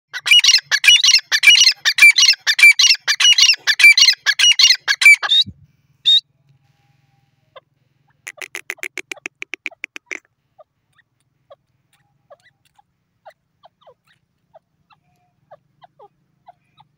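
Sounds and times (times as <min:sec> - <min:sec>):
bird shrill calls: 0:00.2 - 0:06.2, 0:08.2 - 0:10.3
quiet fast clicks: 0:08.3 - 0:10.2.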